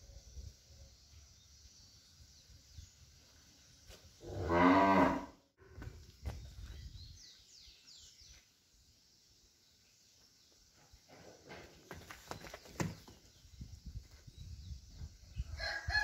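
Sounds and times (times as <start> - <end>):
scuffing steps on dirt: 5.7 - 7.0.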